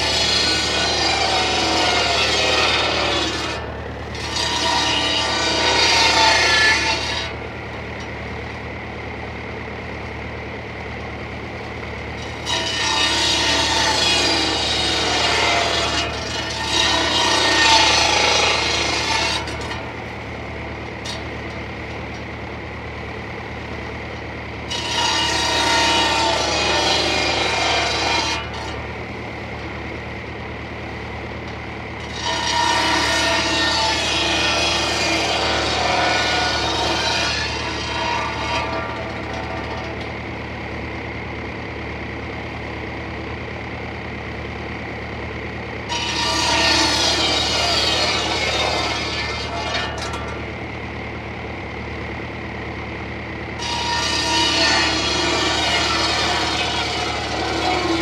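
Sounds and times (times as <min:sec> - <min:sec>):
circular saw cutting wood: 0:00.0 - 0:07.4, 0:12.1 - 0:22.3, 0:24.6 - 0:28.9, 0:32.0 - 0:40.2, 0:45.8 - 0:50.6, 0:53.5 - 0:58.0
tractor engine drone: 0:00.0 - 0:58.0.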